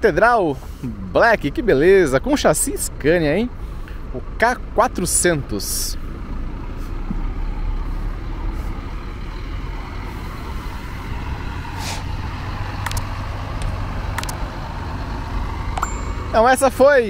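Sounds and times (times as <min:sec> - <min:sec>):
diesel engine droning: 0:00.0 - 0:17.0
air brake hiss: 0:11.8 - 0:12.1
sharp clicks: 0:12.8 - 0:14.5.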